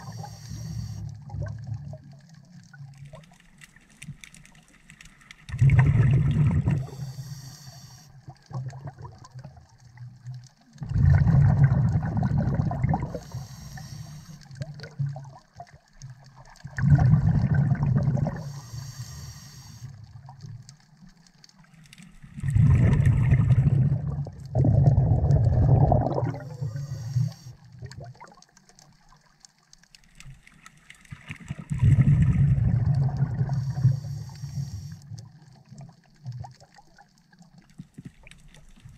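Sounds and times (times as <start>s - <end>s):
regulator hiss: 0.0s - 1.0s, 6.9s - 8.2s, 13.2s - 14.4s, 18.4s - 19.9s, 26.5s - 27.6s, 33.6s - 35.0s
exhaled air bubbling: 0.0s - 3.4s, 5.4s - 20.7s, 22.1s - 28.6s, 31.0s - 38.9s.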